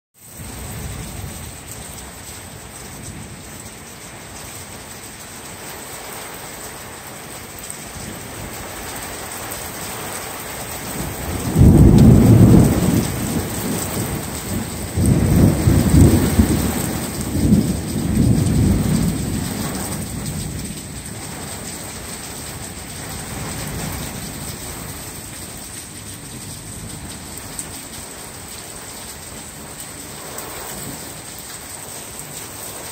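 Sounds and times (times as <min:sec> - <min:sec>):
steady rain: 0:00.2 - 0:32.9
thunder rolling: 0:10.6 - 0:28.4.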